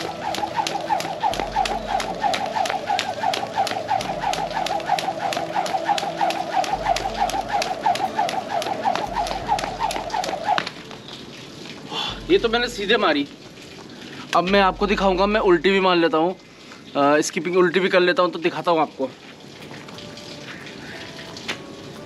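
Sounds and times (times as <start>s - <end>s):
rope whirring through air: 0.0s - 10.8s
skipping rope ticking on concrete: 0.0s - 10.8s.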